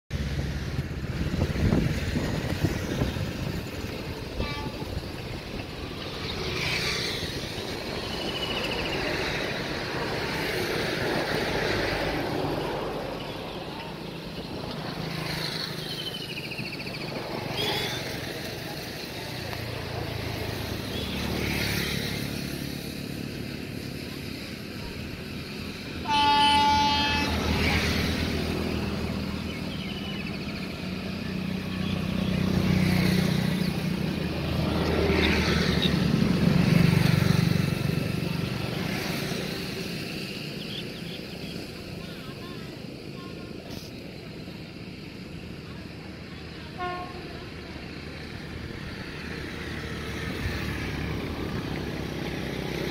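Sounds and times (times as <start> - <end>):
freight train rumble: 0.1 - 52.9
locomotive horn blast: 4.1 - 5.7, 26.0 - 28.1, 46.7 - 47.7.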